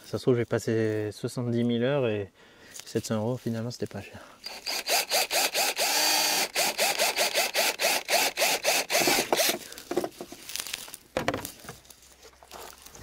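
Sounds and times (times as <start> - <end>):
cordless drill whirring: 4.4 - 9.7.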